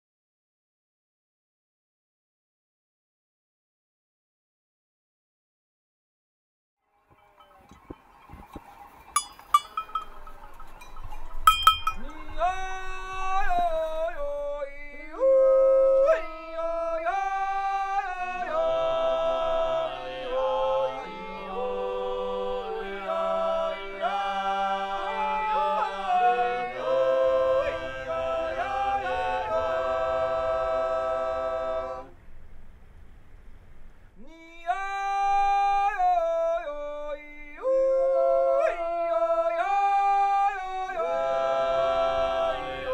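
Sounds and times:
short ringing clanks: 9.2s - 12.4s
men's group yodeling: 11.9s - 32.1s, 34.2s - 42.9s.

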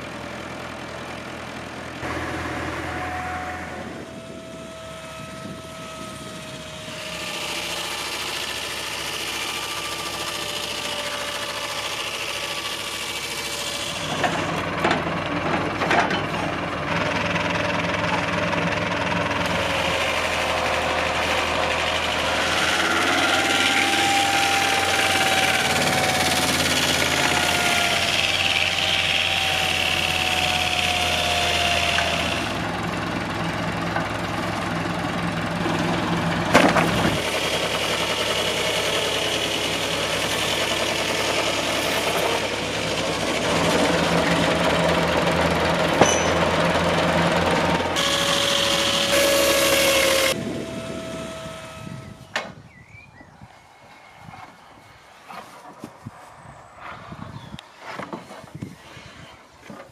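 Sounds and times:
tractor engine chugging: 0.0s - 52.2s
saw blade cutting log: 6.3s - 14.7s, 19.3s - 32.8s, 35.5s - 52.0s.

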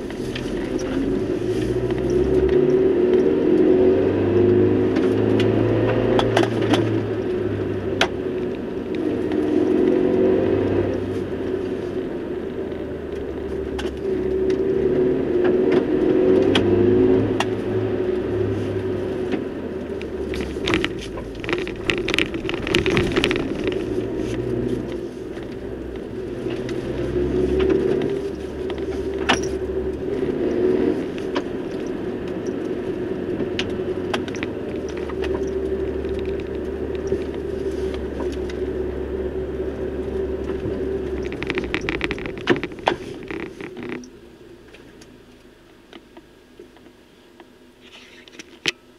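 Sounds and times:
vehicle engine hum: 0.0s - 48.9s
clicks and rattles: 20.0s - 25.6s, 40.4s - 44.1s.

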